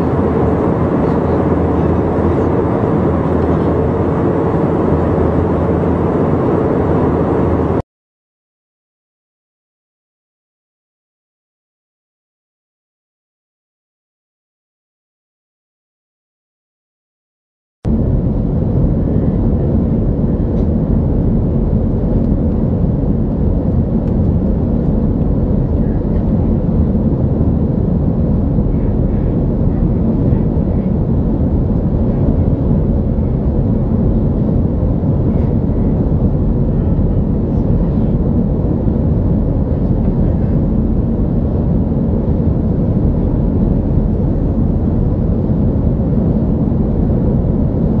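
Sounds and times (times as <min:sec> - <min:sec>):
airliner cabin engine drone: 0:00.0 - 0:07.8, 0:17.9 - 0:48.0.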